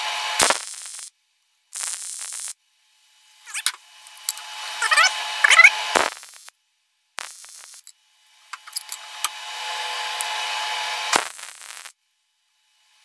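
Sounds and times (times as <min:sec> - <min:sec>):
welding arc crackling: 0:00.0 - 0:01.1, 0:01.7 - 0:02.6, 0:03.5 - 0:06.5, 0:07.2 - 0:07.9, 0:08.6 - 0:12.0.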